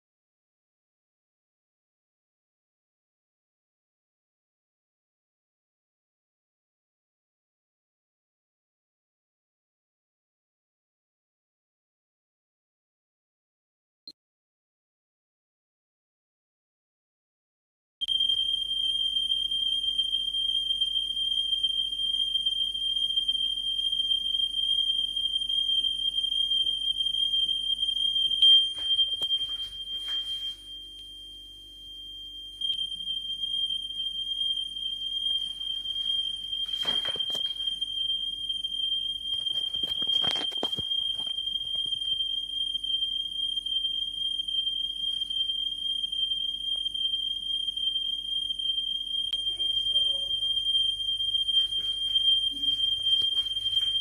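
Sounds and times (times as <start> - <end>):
high tone wavering in pitch: 18.0 - 54.0.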